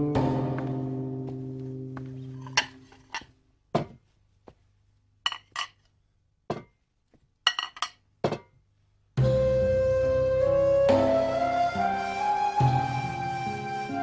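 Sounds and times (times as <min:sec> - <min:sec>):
ceramic plates clinking: 0:02.4 - 0:03.3, 0:05.2 - 0:05.8, 0:07.4 - 0:08.5.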